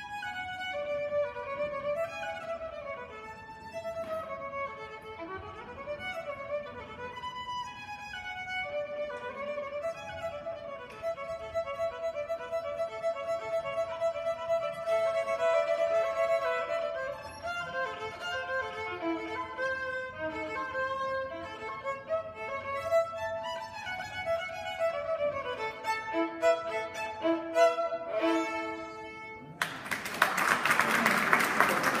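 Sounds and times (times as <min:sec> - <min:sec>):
solo violin melody: 0:00.0 - 0:29.6
audience applause: 0:29.6 - 0:32.0.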